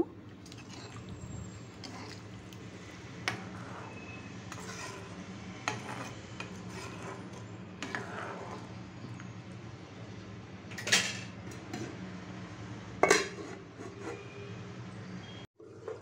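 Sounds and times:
metal ladle scraping a pan: 2.9 - 9.0, 13.0 - 14.5.

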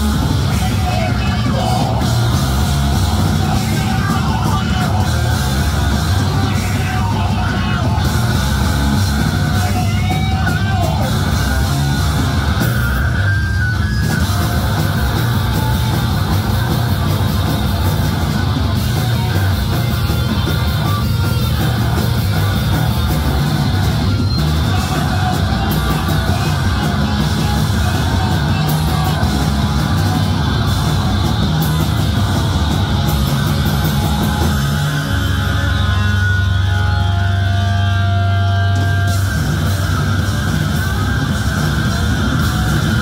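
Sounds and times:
live rock band playing: 0.0 - 43.0.

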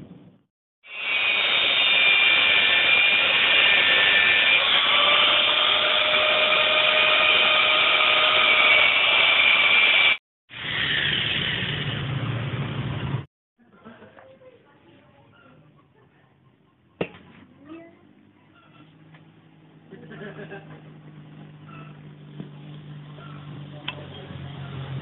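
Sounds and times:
angle grinder cutting steel: 0.8 - 12.2.

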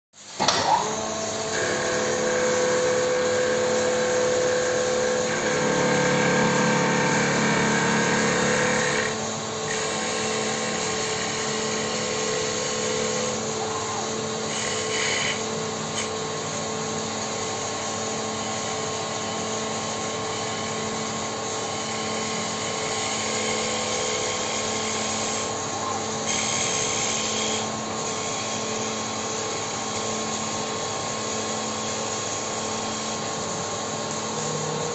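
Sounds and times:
motor hum: 1.5 - 9.8
cutters shaving wood: 1.5 - 16.2.

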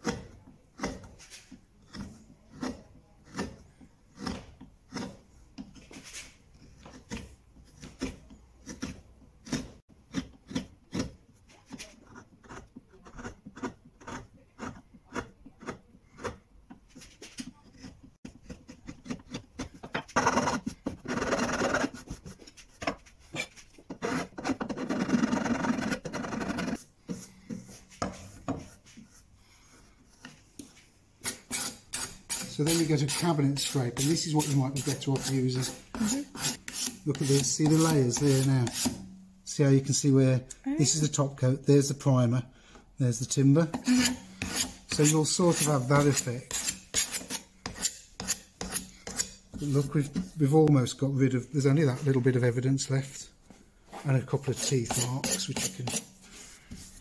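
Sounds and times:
file rasping on wood: 0.0 - 5.9, 6.7 - 11.2, 12.0 - 16.4, 17.8 - 22.4, 31.2 - 39.0, 43.8 - 49.8, 54.4 - 57.0.

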